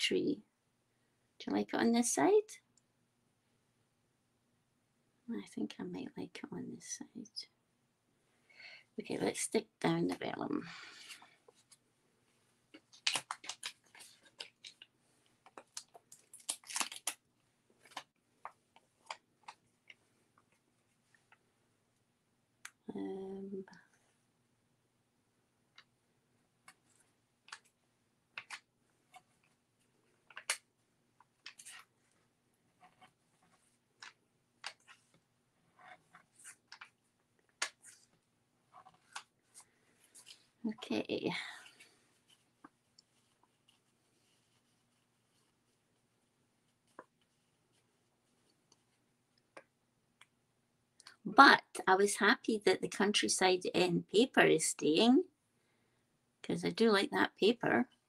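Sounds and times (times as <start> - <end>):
paper crinkling and rustling: 12.8 - 17.2.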